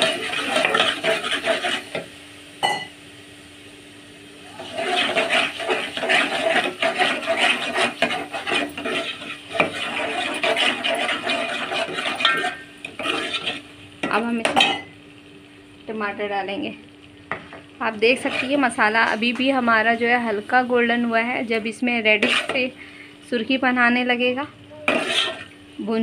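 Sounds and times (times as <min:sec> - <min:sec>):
spoon scraping metal pot: 0:00.0 - 0:02.0, 0:04.6 - 0:13.6, 0:18.1 - 0:18.8, 0:22.0 - 0:22.7, 0:24.9 - 0:25.6.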